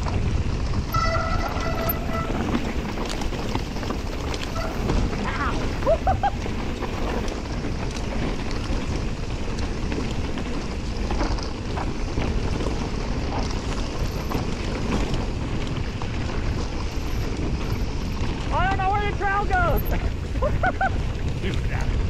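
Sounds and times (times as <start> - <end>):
tyres rolling over dirt: 0.0 - 22.0
wind on microphone: 19.7 - 22.0.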